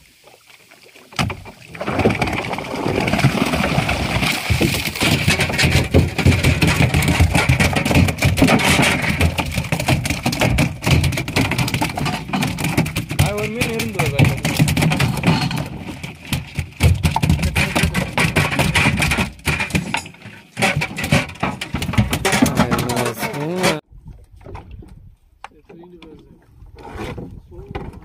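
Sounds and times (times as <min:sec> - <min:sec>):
sharp knocks: 0:04.5 - 0:23.8.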